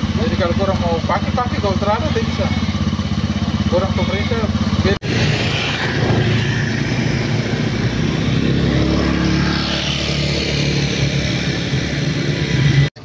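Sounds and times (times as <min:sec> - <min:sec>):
vehicle engine running: 0:00.0 - 0:13.0
broad rushing noise: 0:04.8 - 0:12.9.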